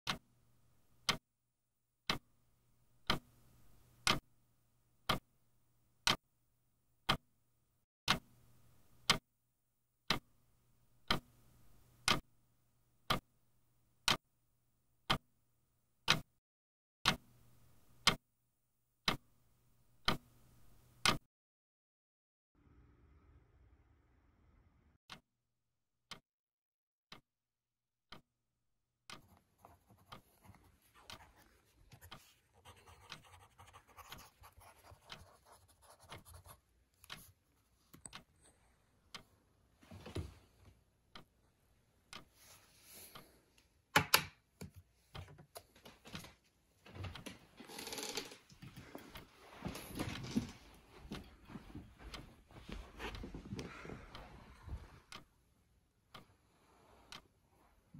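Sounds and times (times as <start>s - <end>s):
pencil writing on notepad: 29.2s - 37.4s
rustling and movement: 48.5s - 55.1s.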